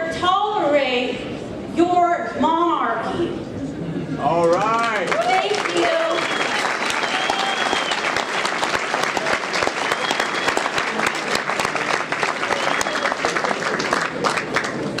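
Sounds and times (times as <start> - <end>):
audience applauding: 4.3 - 15.0.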